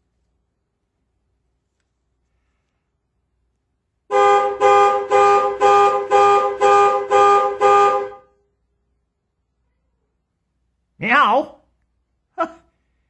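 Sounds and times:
two-note car horn honking: 4.1 - 8.3.

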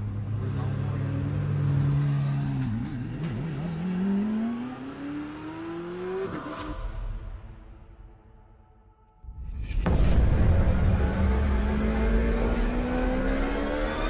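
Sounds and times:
car engine accelerating: 0.0 - 6.8, 9.9 - 14.0.

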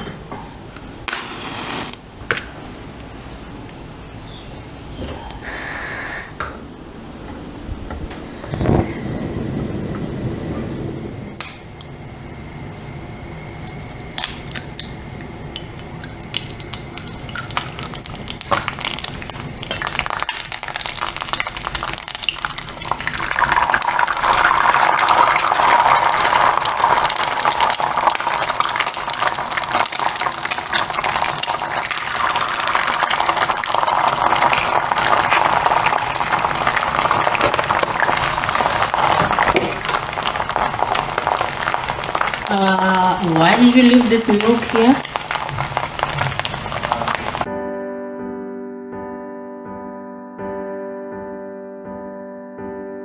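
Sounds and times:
eggs sizzling in hot oil: 1.1 - 2.0, 13.7 - 47.5.

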